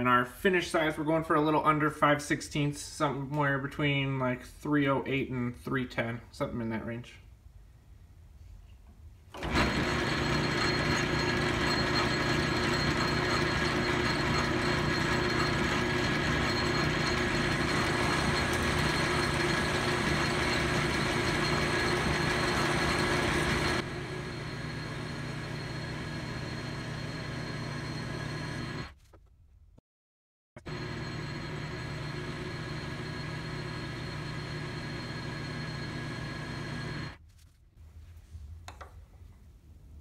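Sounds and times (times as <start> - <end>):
metal lathe humming with whine: 9.4 - 28.9, 30.6 - 37.2.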